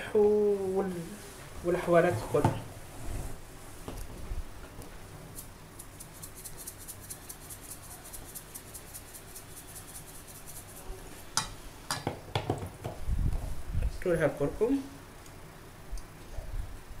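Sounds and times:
salt shaker ticking: 5.3 - 10.9.

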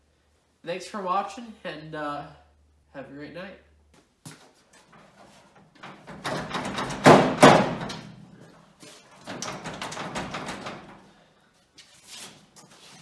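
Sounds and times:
heavy knocks: 5.8 - 8.0.

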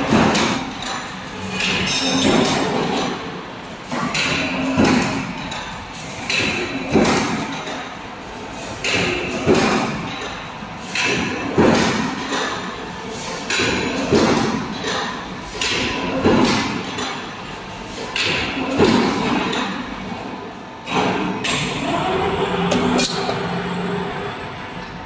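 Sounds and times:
roll-forming machine running: 0.0 - 25.0
heavy machine thumps: 1.6 - 3.1, 3.9 - 5.5, 6.2 - 7.7, 8.8 - 10.3, 10.9 - 12.7.

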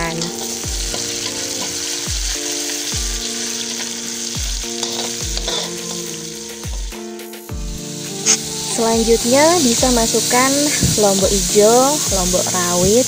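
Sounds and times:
spatula stirring in wok: 0.0 - 7.1
background music with steady beat: 0.0 - 13.0
shallots and garlic sizzling: 0.0 - 13.0.

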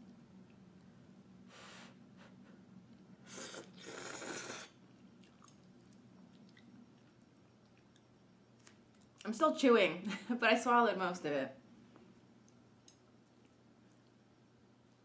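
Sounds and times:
person slurping noodles: 3.2 - 4.8.

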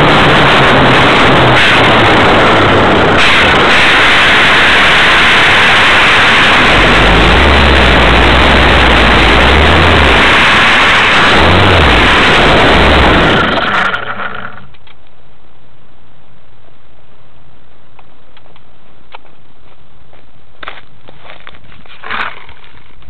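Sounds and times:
rush of wind: 0.0 - 14.2.

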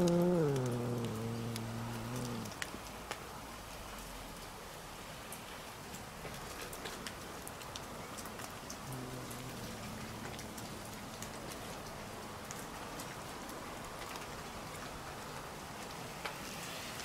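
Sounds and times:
cat growling: 0.0 - 2.6, 8.8 - 10.5
faint crackling ticks: 0.0 - 3.2, 5.3 - 16.4.

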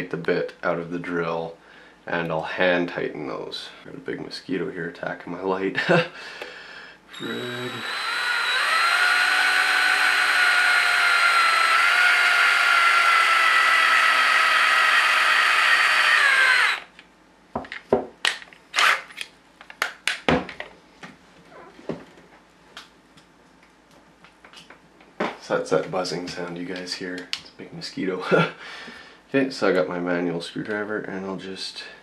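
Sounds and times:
cordless drill whine: 7.1 - 16.9.

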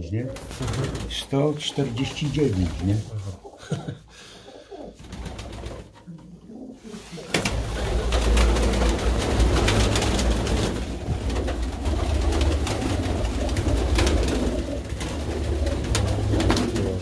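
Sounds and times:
wing flaps: 0.3 - 1.3, 5.0 - 6.0, 7.0 - 17.0
pigeons cooing: 4.4 - 17.0.

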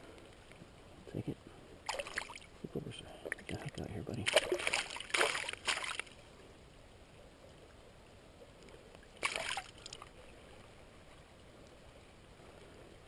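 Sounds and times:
low river background: 0.0 - 13.0
water splashing: 1.8 - 6.2, 9.0 - 10.6.

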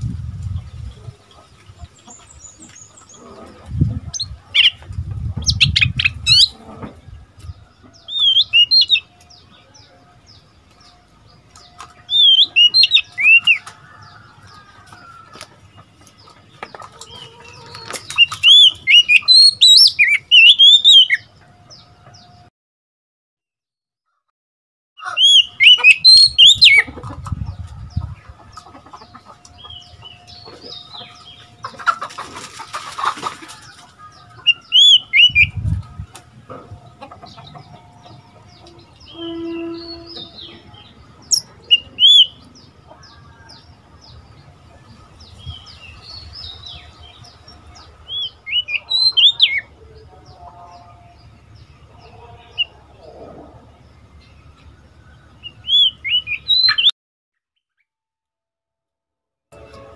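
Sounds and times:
bird singing whistled notes: 8.0 - 10.0, 12.1 - 13.6, 18.2 - 21.2, 25.2 - 26.9, 34.5 - 36.1, 39.0 - 42.4, 55.4 - 56.9.

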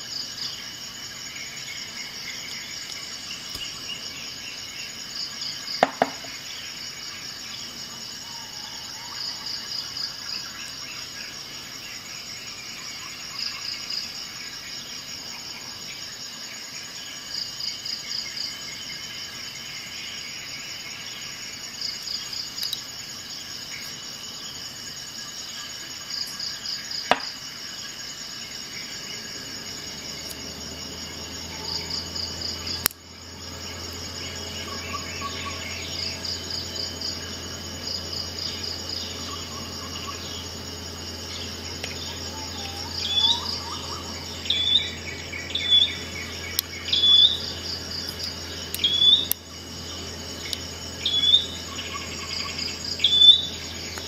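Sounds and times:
insect chirping trills: 0.0 - 54.0
bird chirps: 28.8 - 54.0
sharp clicks: 32.8 - 33.0.

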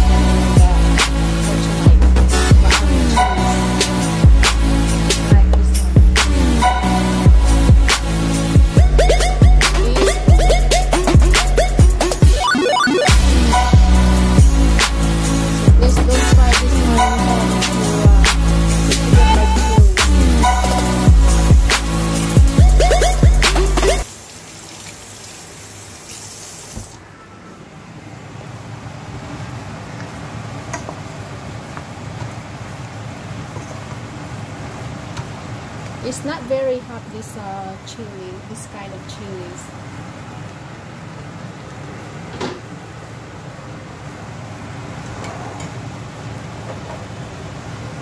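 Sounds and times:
tap running water: 24.0 - 27.0.

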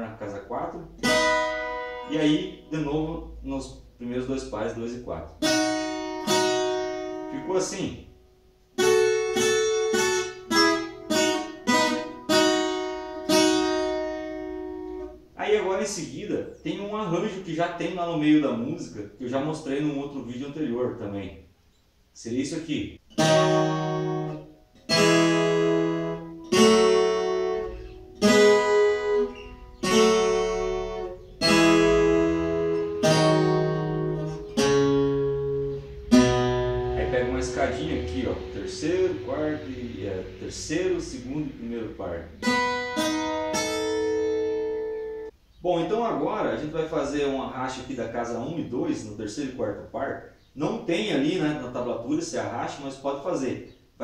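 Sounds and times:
plucked guitar chords ringing: 0.8 - 3.9, 5.4 - 15.3, 23.1 - 45.3
plucked guitar double stops: 23.2 - 40.4.

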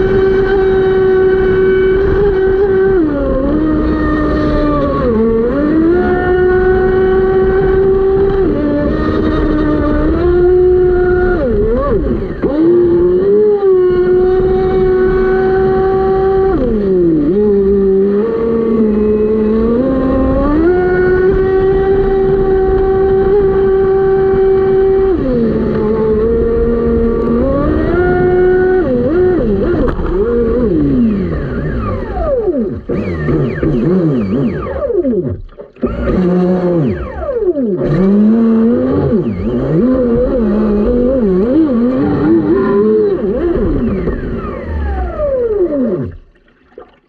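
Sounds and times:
electric motor whine: 0.0 - 46.3
water rushing and splashing: 46.0 - 47.0.

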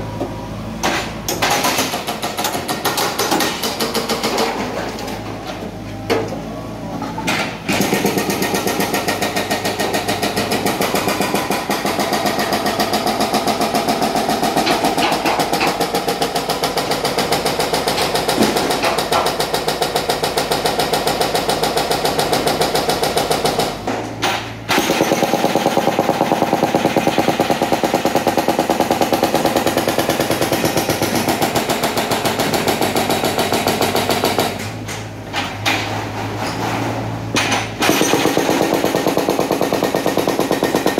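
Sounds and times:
hydraulic breaker hammering concrete: 0.8 - 5.0, 7.4 - 34.9, 37.3 - 40.9.

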